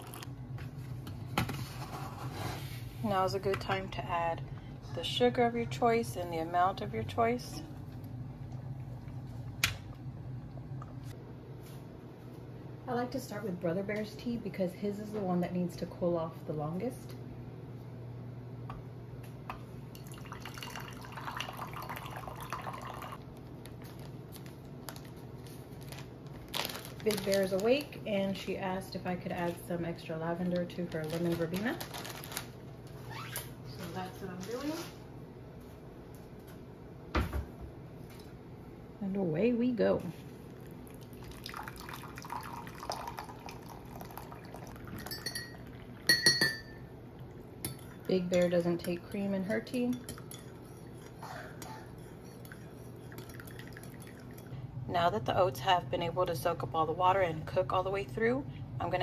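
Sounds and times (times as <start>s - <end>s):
water pouring into mug: 20.0s - 23.2s, 40.5s - 46.2s, 52.5s - 54.5s
ceramic clinks: 45.0s - 46.8s.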